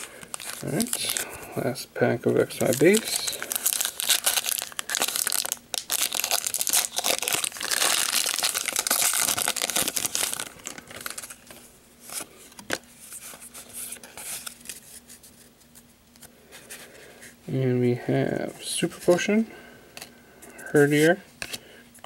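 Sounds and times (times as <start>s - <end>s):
cards rustling: 0.0s - 1.3s, 2.5s - 16.9s
foil wrapper crinkling and tearing: 0.0s - 1.3s, 2.5s - 12.8s.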